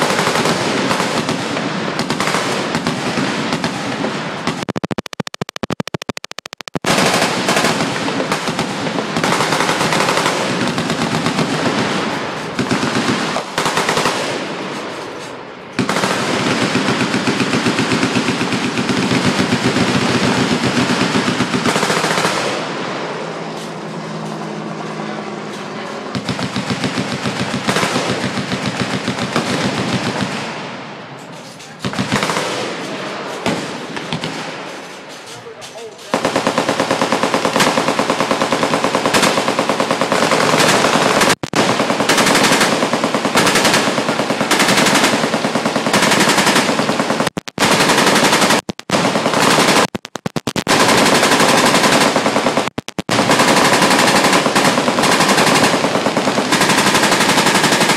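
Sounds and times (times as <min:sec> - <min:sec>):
machine-gun fire: 0:00.0 - 0:14.7, 0:15.8 - 0:23.3, 0:26.1 - 0:30.8, 0:31.8 - 0:34.8, 0:36.1 - 0:57.9.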